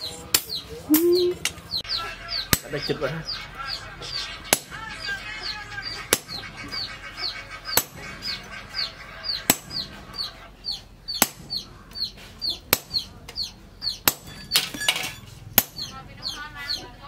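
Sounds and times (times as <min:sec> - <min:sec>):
chickens clucking and peeping: 0:00.0 - 0:17.0
hammer striking chisel on anvil: 0:12.6 - 0:15.0, 0:15.6 - 0:15.9.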